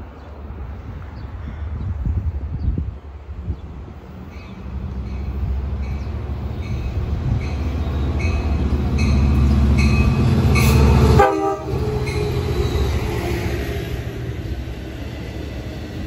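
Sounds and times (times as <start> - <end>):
diesel locomotive engine rumble: 0.0 - 16.0
train horn blast: 10.1 - 12.3.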